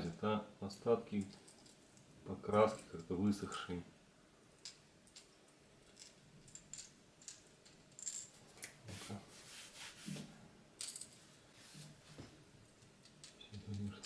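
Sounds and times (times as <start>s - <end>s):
light rubbing in hands: 8.9s - 10.3s.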